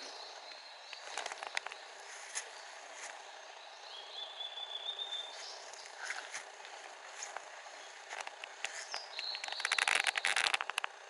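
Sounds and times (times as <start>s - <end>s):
bird chips: 0.0s - 3.3s, 7.2s - 11.0s
rattling run of clicks: 0.9s - 3.2s, 5.7s - 11.0s.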